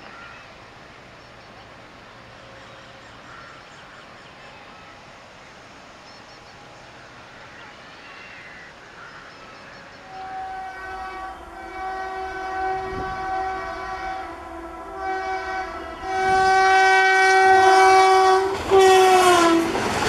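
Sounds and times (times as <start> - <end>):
low train rumble: 0.0 - 20.0
locomotive air horn blasts: 10.1 - 19.8.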